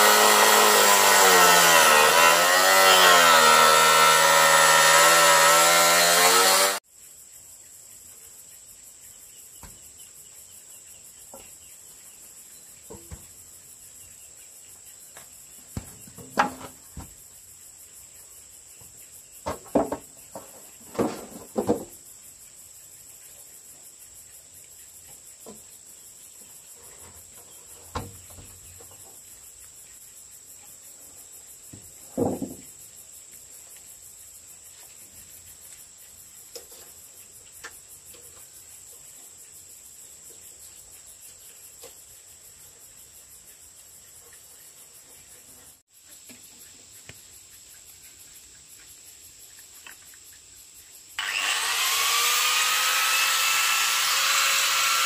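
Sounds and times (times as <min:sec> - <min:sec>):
chainsaw running: 0:00.0 - 0:06.8, 0:51.2 - 0:55.0.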